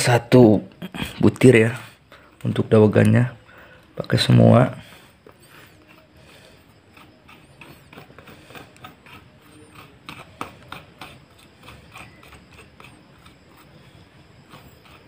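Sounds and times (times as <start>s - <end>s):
spoon scraping coconut shell: 4.0s - 15.0s.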